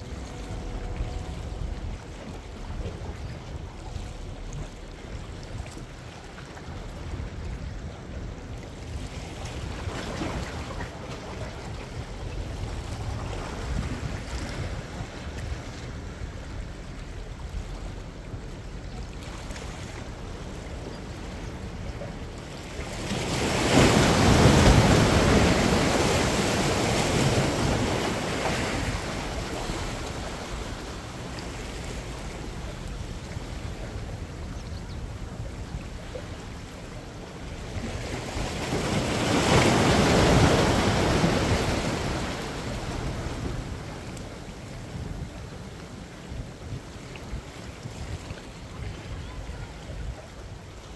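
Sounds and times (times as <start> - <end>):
wind rumble on microphone: 0.0 - 50.9
waves rushing over rocks: 21.7 - 50.9.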